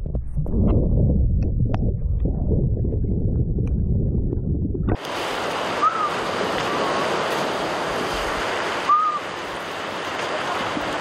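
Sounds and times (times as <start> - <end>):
muffled underwater rumble: 0.0 - 5.0
waves lapping: 5.0 - 11.0.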